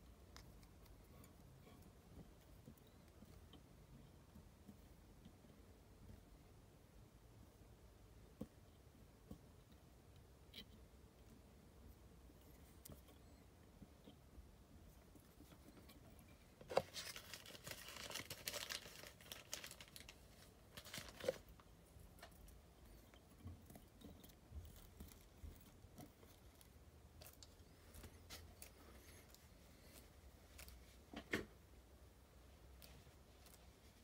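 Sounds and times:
crinkly rustling: 15.2s - 31.2s.

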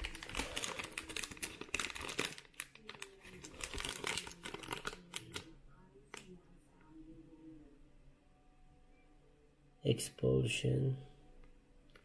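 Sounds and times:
plastic wrapper crinkling: 0.0s - 6.3s.

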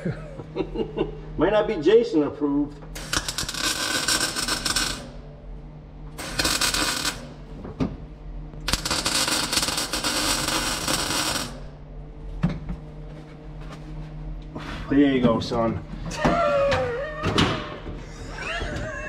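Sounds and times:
welder crackling: 3.0s - 5.2s, 6.2s - 7.4s, 8.6s - 11.7s.

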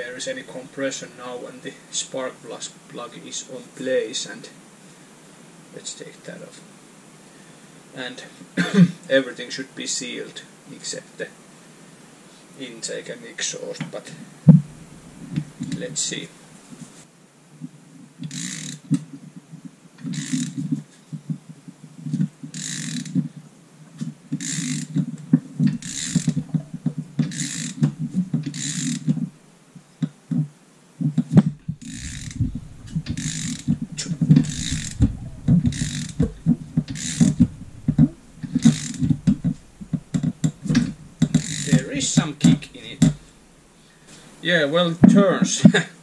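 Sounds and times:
socket ratchet clicking: 25.8s - 26.6s
engine gears clattering: 31.8s - 43.4s.

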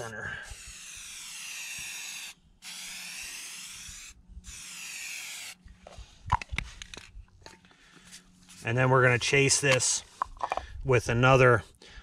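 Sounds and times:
aerosol spray can hissing: 0.8s - 5.6s.

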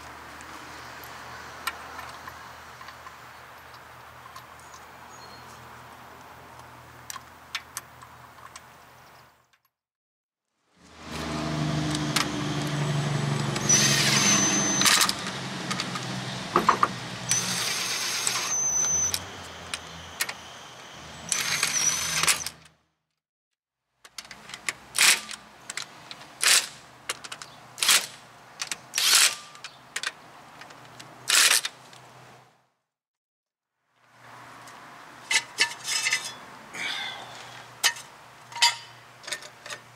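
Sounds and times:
impact wrench whine: 11.9s - 15.8s, 16.5s - 20.4s, 21.3s - 22.6s
impact wrench short bursts: 13.6s - 15.2s.

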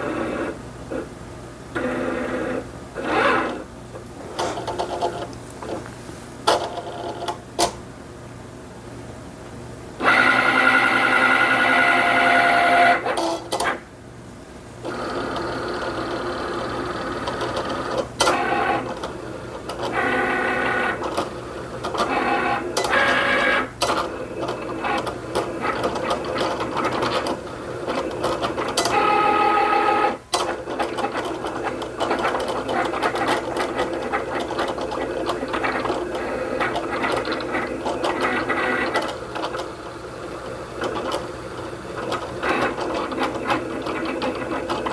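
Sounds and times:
cutting machine motors whirring: 1.8s - 3.7s, 10.0s - 13.8s, 14.8s - 44.9s.

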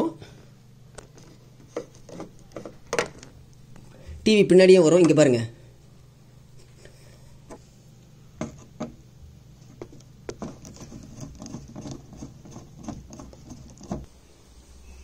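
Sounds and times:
screwdriver clicking and scraping: 10.3s - 14.1s.

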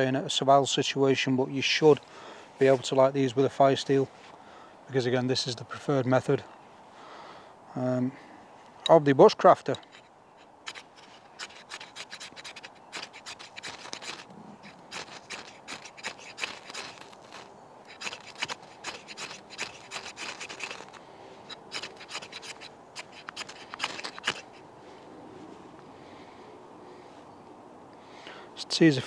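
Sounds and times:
knife scraping fire steel: 9.6s - 24.6s.

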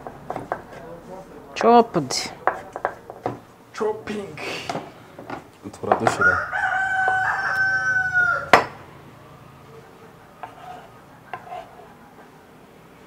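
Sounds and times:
knife chopping on wooden board: 0.0s - 0.9s, 2.4s - 3.5s, 10.4s - 11.7s
rooster crowing: 6.1s - 8.9s, 10.4s - 12.6s.

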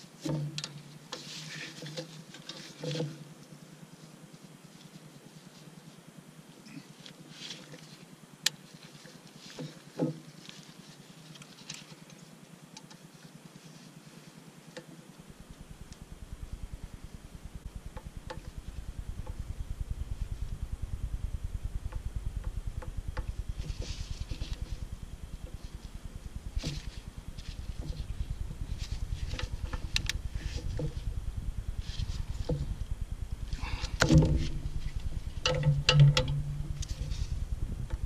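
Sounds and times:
steady low rumble: 15.1s - 38.0s.

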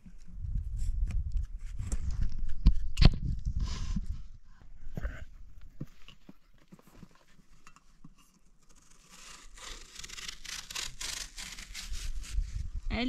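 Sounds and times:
knife sawing through melon: 8.8s - 12.6s.

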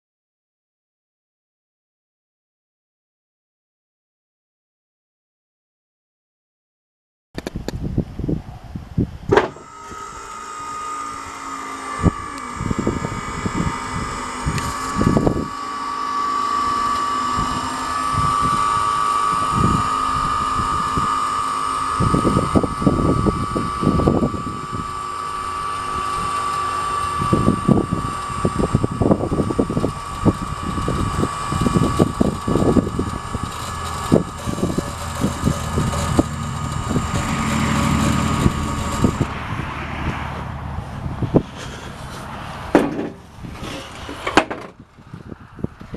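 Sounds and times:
pump motor click: 9.3s - 39.3s
hydraulic pump motor whining: 9.3s - 45.9s.

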